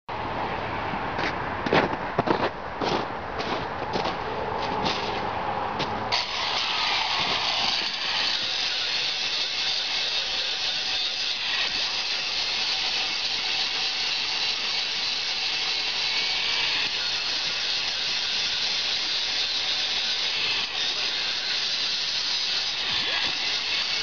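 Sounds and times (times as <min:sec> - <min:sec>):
angle grinder grinding steel: 0:06.1 - 0:24.0.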